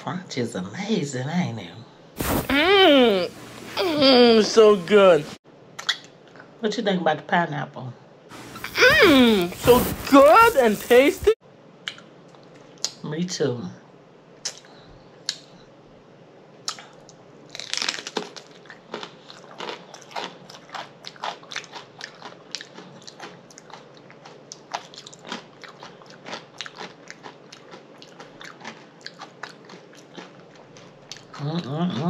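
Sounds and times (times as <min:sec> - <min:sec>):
person crunching food: 0:16.7 - 0:32.0.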